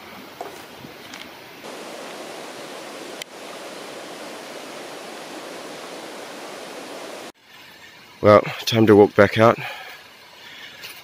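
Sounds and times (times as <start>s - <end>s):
stream rushing: 1.6s - 7.4s.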